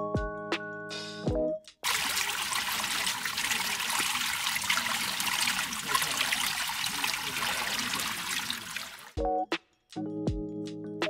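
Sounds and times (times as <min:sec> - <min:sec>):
running water trickling: 0:01.8 - 0:09.2.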